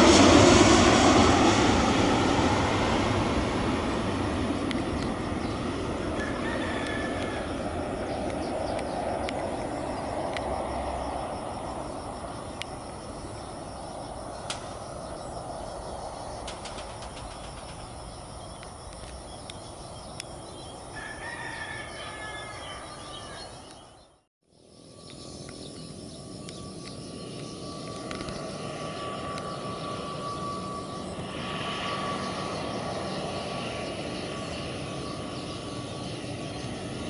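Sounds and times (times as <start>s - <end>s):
jet engines rumbling: 0.0s - 37.0s
turboprop engine whine: 0.0s - 37.0s
drawn-out bird call: 4.9s - 10.3s, 12.4s - 24.1s.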